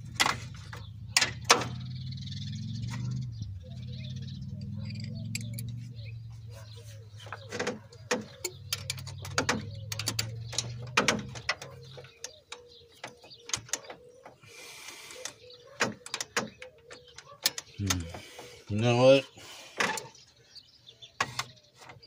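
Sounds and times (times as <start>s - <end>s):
wrench clicking on engine parts: 4.4s - 6.0s, 7.3s - 14.0s, 15.1s - 18.2s.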